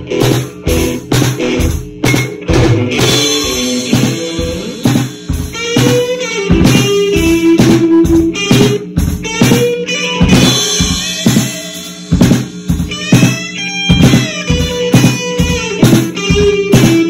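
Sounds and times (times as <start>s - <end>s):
guitar sliding notes: 0.0s - 12.0s, 12.9s - 17.0s
drum kit beat: 0.0s - 17.0s.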